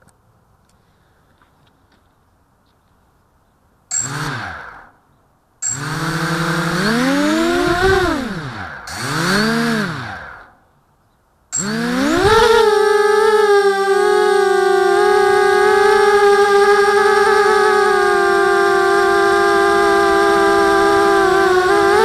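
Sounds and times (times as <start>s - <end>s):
quadcopter motors whining: 3.9s - 10.7s, 11.6s - 22.0s.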